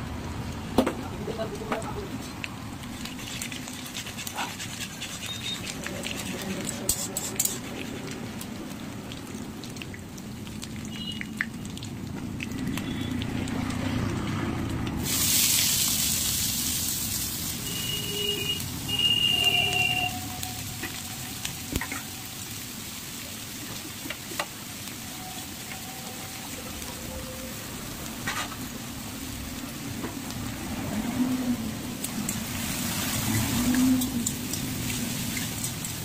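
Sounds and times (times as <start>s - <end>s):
hot oil sizzling: 0.0s - 36.0s
metal spatula stirring: 3.0s - 8.2s
high whistling tones: 17.7s - 20.7s.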